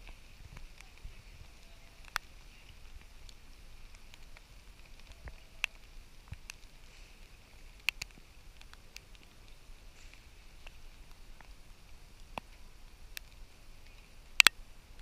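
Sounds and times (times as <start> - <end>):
wet weather hiss: 0.0 - 15.0.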